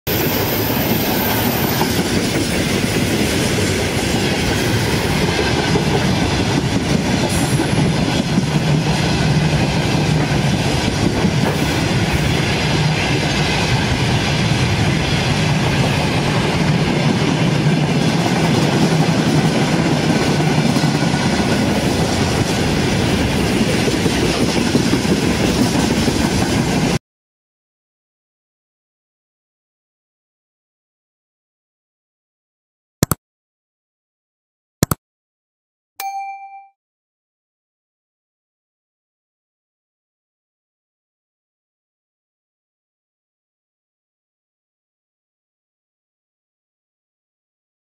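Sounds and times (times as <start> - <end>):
train wheels clattering on rails: 0.1 - 27.0.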